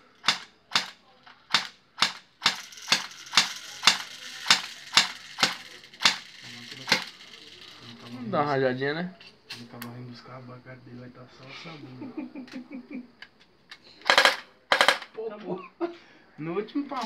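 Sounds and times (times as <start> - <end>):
airsoft pistol shots: 0.2 - 6.2.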